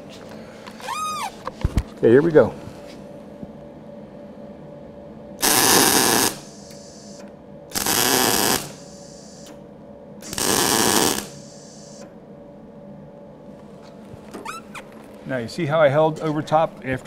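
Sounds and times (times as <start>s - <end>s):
shielding gas hiss: 5.4s - 9.6s, 10.2s - 12.1s
welding arc: 5.4s - 9.6s, 10.2s - 12.0s.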